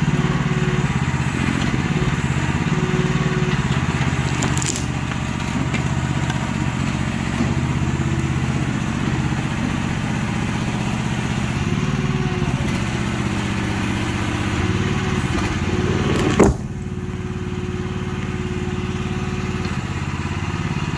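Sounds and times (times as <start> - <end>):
small engine running: 0.0 - 20.9
concrete slab crashing: 3.6 - 6.4, 15.4 - 16.8.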